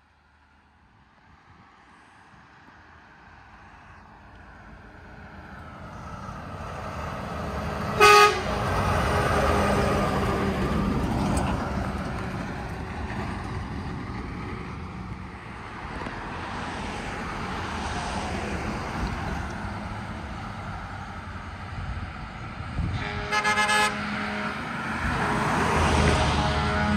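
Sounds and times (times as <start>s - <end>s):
truck engine and tyre noise: 0.0s - 26.9s
vehicle approaching: 3.4s - 26.9s
truck horn toot: 8.0s - 8.7s, 22.8s - 26.9s.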